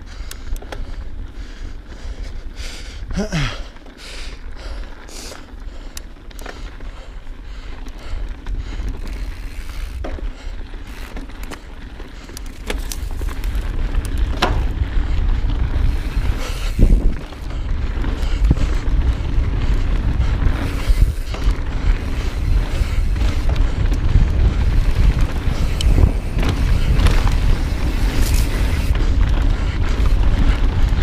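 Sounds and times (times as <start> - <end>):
bike tyres rolling on dirt: 0.0 - 31.0
bike clicks and knocks: 0.1 - 1.0, 7.6 - 31.0
wind buffeting microphone: 6.8 - 31.0.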